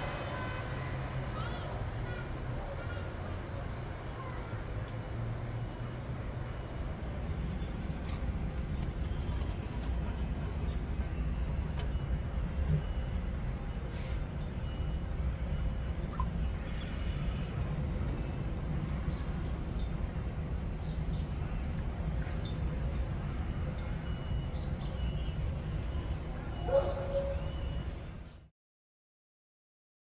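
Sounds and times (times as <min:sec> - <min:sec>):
distant city traffic rumble: 0:00.0 - 0:28.5.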